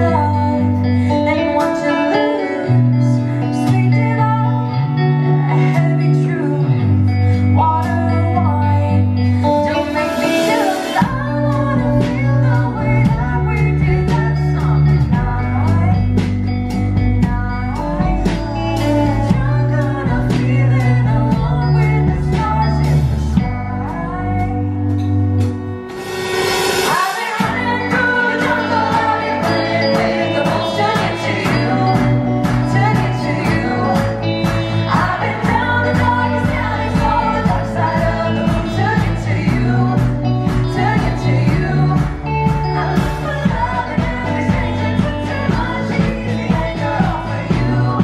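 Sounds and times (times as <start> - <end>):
woman singing into a microphone: 0.0 - 25.1, 26.8 - 48.0
electric guitar: 0.0 - 48.0
rushing swell: 25.9 - 27.3.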